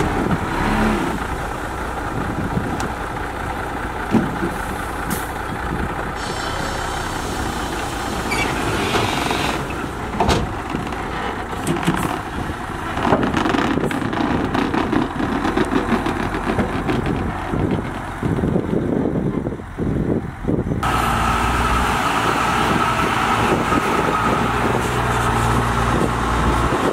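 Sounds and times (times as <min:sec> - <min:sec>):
diesel engine running: 0:00.0 - 0:26.9
dirt load tipping out: 0:06.2 - 0:18.5.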